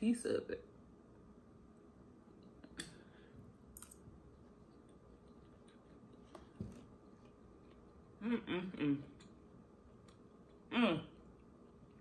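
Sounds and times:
chewing food: 4.0 - 8.2.

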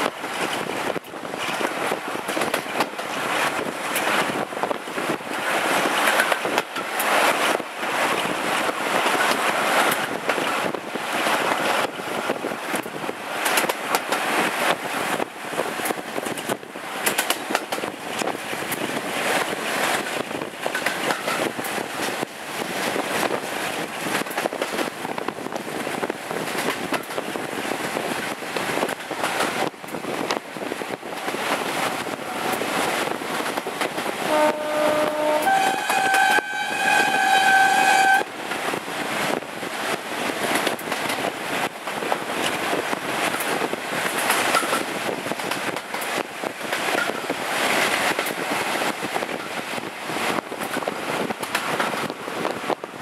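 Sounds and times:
diesel locomotive moving: 0.0 - 52.9
wheel-on-rail noise: 0.0 - 53.0
wind: 0.0 - 53.0
two-tone train horn: 34.2 - 38.3.

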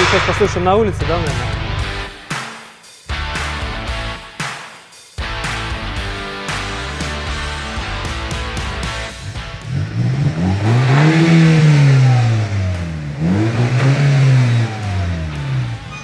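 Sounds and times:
turbocharged car engine revving: 6.6 - 16.0.

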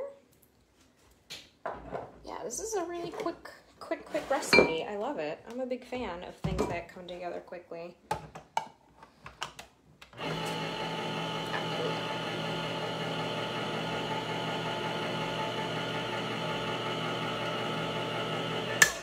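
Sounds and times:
can opener motor humming: 10.2 - 19.0
can opener clicks: 18.8 - 19.0.

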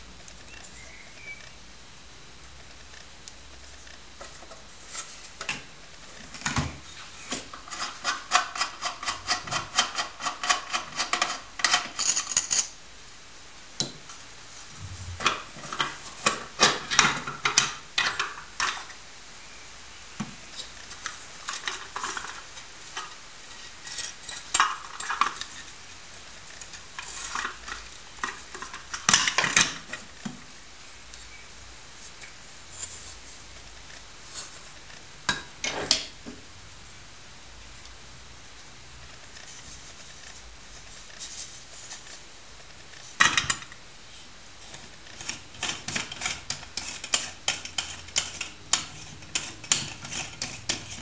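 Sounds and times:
metal parts clinking and scraping: 7.7 - 12.8.

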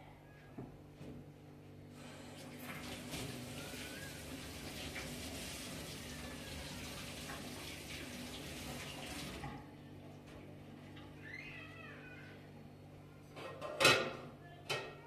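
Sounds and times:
water running from tap: 2.0 - 9.7.

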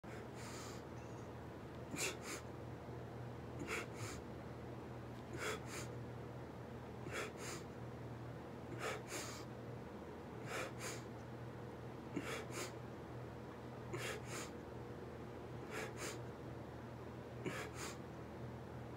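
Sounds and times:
low steady hum: 0.0 - 18.9
man breathing hard: 0.1 - 0.9, 1.9 - 2.5, 3.6 - 4.2, 5.3 - 6.0, 7.0 - 7.7, 8.7 - 9.5, 10.4 - 11.1, 12.1 - 12.8, 13.9 - 14.6, 15.6 - 16.3, 17.4 - 18.0.

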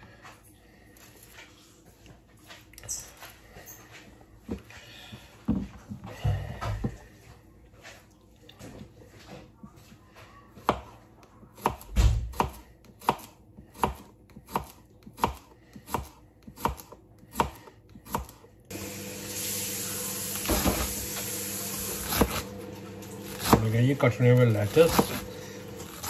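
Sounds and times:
knife chopping cucumber on board: 10.6 - 18.4, 21.8 - 22.5, 23.2 - 26.0
serrated knife shredding cabbage: 20.1 - 26.0.

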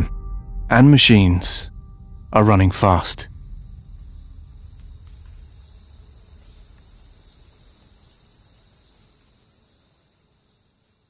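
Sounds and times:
faint low rumble: 0.0 - 8.2
insects trilling: 1.7 - 11.0.

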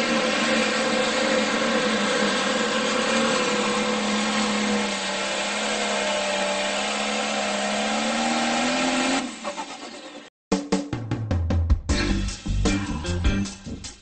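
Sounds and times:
tractor diesel engine droning: 0.0 - 10.3.

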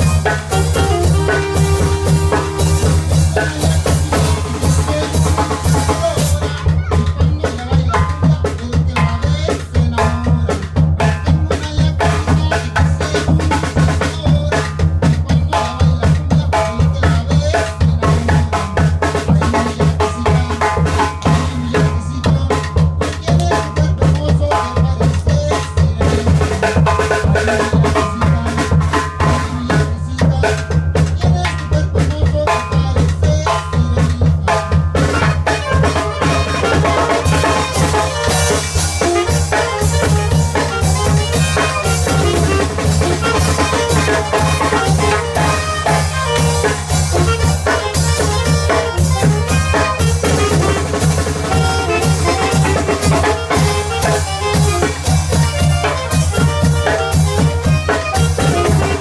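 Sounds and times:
saxophones: 0.0 - 6.2, 35.0 - 59.0
bass drum with cymbal: 0.0 - 59.0
snare drum: 0.0 - 59.0.

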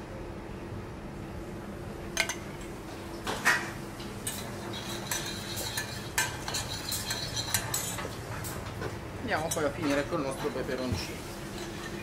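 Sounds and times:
low kitchen hum: 0.0 - 12.0
metal spoon scraping saucepan: 4.3 - 8.1, 11.5 - 12.0.

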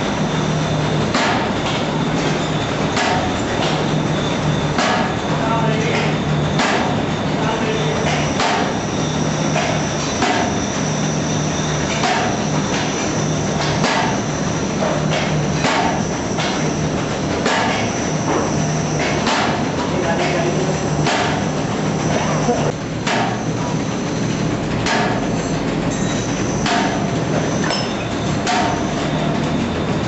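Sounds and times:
low machine hum: 0.0 - 30.0.

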